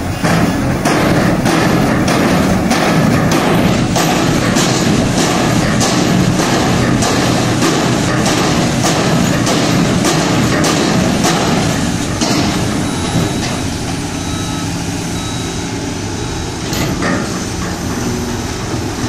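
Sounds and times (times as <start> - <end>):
heavy machinery diesel engines: 0.0 - 19.0
sharp knocks: 0.2 - 14.6.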